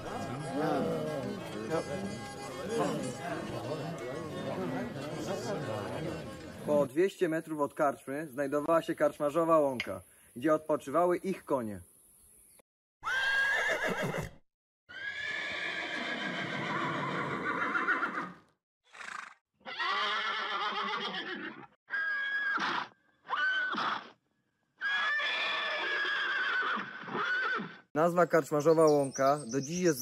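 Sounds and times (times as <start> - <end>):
horses neighing: 0.0 - 6.7, 13.0 - 24.1, 24.8 - 27.8.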